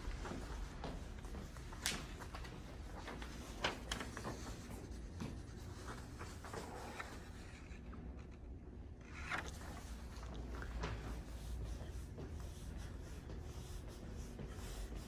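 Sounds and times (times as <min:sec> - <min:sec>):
soft footsteps: 0:00.0 - 0:08.2, 0:09.5 - 0:15.0
low room hum: 0:00.0 - 0:15.0.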